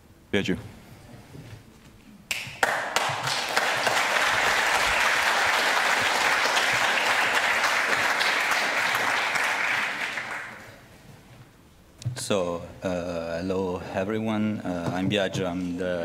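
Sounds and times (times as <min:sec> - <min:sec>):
audience applauding: 0:02.3 - 0:10.8.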